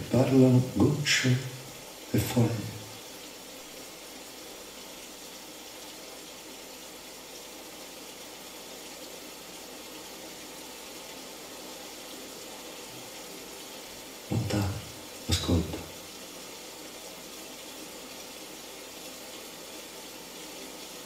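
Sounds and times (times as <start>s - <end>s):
steady rain: 0.0s - 21.0s.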